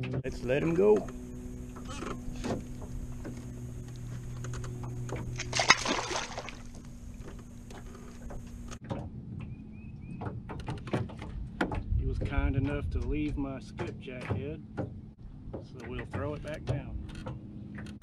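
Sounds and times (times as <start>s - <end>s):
steady low hum: 0.0s - 9.4s
fish splashing into water: 5.3s - 7.3s.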